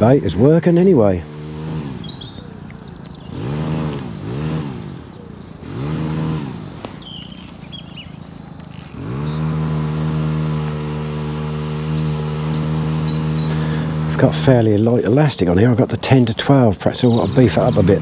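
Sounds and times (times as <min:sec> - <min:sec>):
strimmer engine revving: 0:00.0 - 0:18.0.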